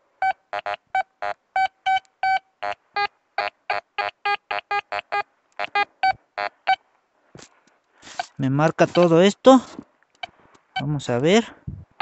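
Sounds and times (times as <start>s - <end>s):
metal detector beeping: 0.2s - 6.8s, 8.0s - 9.2s.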